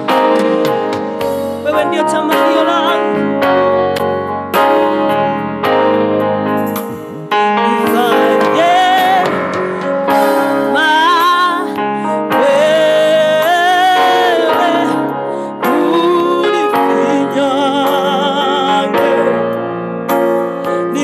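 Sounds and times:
keyboard chords: 0.0 - 21.0
woman singing gospel song: 1.6 - 3.4, 7.6 - 19.6.

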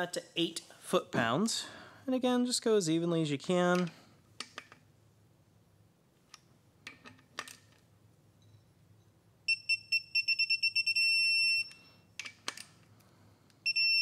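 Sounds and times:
torque wrench beeps: 9.5 - 11.8, 13.7 - 14.0.

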